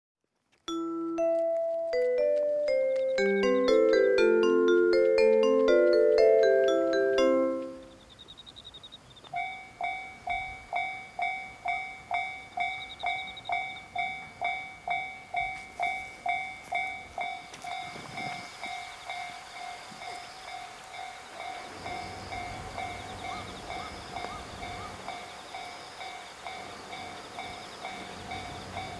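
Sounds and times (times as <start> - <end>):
level crossing bell ringing: 0.7 - 8.0
diesel train rumble: 9.6 - 28.9.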